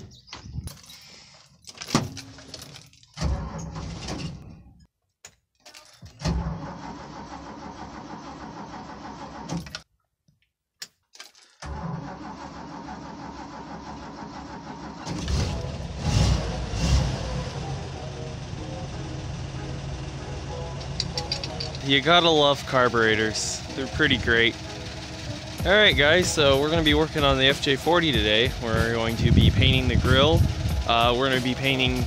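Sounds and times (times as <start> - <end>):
keys jangling: 0.6 - 3.2, 5.6 - 6.2, 11.1 - 11.6, 20.8 - 21.8
engine cranking tries: 0.6 - 4.6, 5.8 - 9.9, 11.2 - 18.5, 19.4 - 32.0
car engine starting and running: 2.0 - 4.7, 6.2 - 9.9, 11.6 - 32.0.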